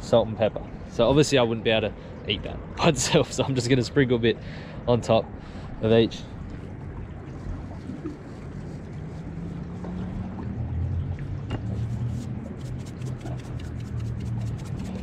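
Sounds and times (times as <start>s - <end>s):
spice shaken from jar ticks: 12.6s - 15.0s.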